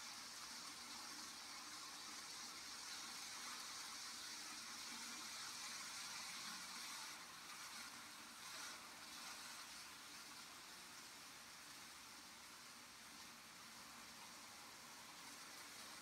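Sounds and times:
model trains whirring on track: 0.0s - 16.0s.

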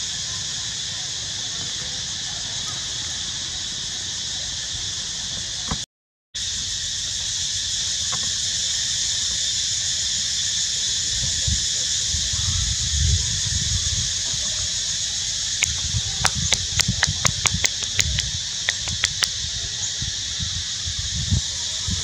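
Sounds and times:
insects droning: 0.0s - 5.8s, 6.4s - 22.0s
sharp clicks: 15.6s - 19.3s.

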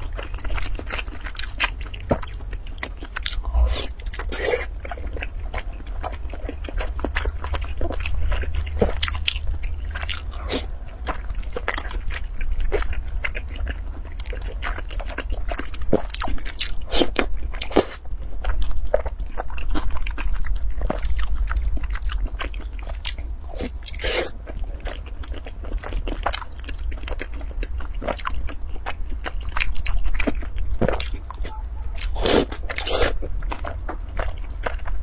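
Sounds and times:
steady low hum: 0.0s - 35.0s
loud wet eating sound: 29.2s - 35.0s.

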